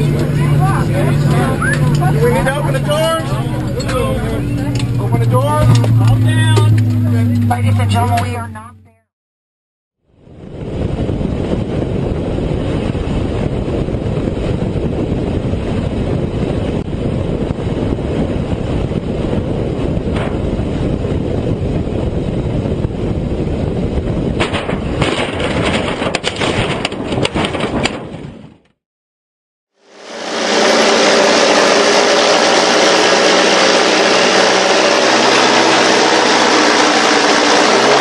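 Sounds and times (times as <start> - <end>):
aircraft wind and motor noise: 0.0 - 9.1, 10.0 - 28.8, 29.7 - 38.0
aircraft crash impacts: 19.0 - 21.7, 23.8 - 28.4.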